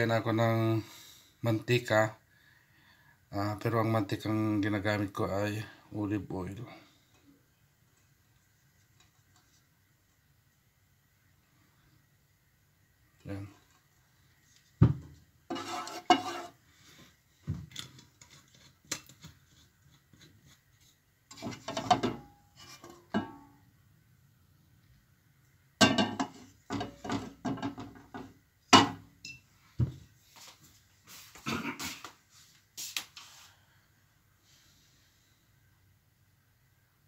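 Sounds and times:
wooden spatula scraping frying pan: 15.5 - 16.6, 18.2 - 23.4.

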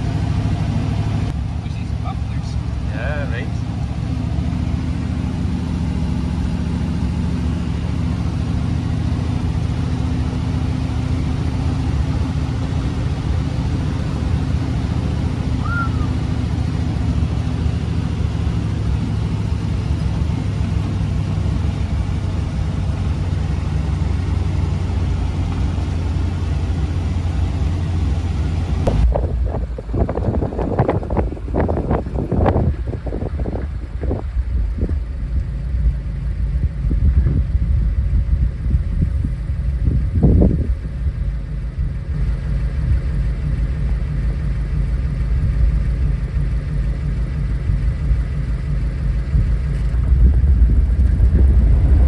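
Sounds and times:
car engine cruising: 0.0 - 52.0
road noise: 0.0 - 52.0
wind noise: 28.8 - 42.0, 49.2 - 52.0.

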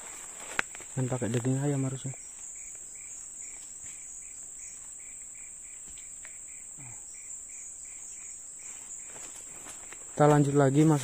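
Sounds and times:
insect chirping: 0.0 - 11.0
insects droning: 0.0 - 11.0.

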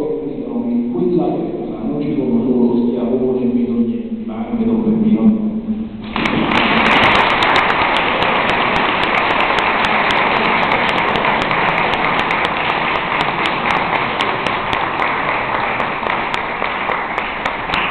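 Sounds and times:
audience applauding: 6.0 - 17.9.

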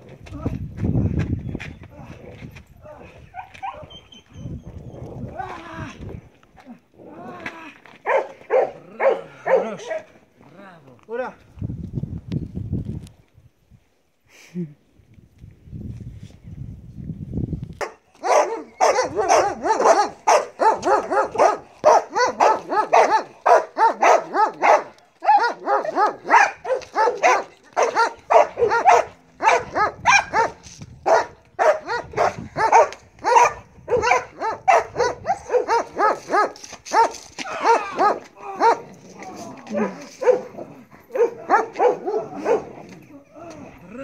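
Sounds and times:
dog barking rapidly: 8.1 - 10.1, 18.2 - 38.8, 40.2 - 40.5, 41.2 - 42.7.

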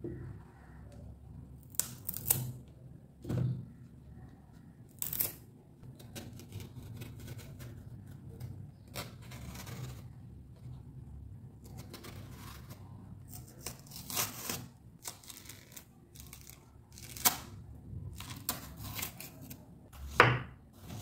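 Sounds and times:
peel scraping and tearing: 1.6 - 2.6, 4.9 - 10.2, 11.6 - 19.7.

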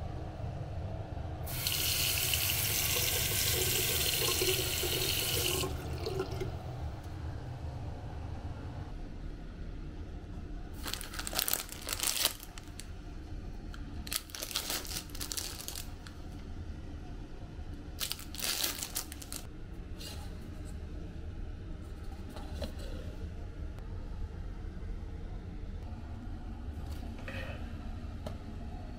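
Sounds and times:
plastic wrappers crinkling: 10.8 - 12.9, 14.0 - 16.1, 18.0 - 19.5.

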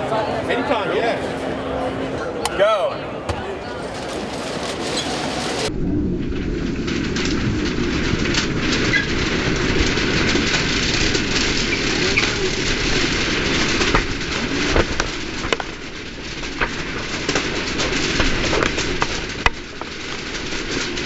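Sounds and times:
crowded hall din: 0.0 - 5.7
faint voices: 0.0 - 5.7.

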